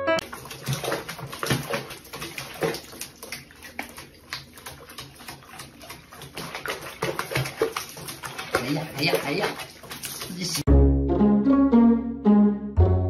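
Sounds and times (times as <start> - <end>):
water running into basin: 0.2 - 10.7
water splashing and dripping: 0.2 - 10.7.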